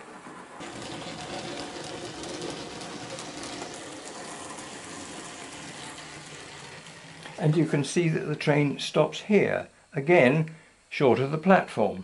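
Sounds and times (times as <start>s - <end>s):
model train wheels rattling on rail: 0.0s - 8.0s
faint motor hum: 0.0s - 12.0s.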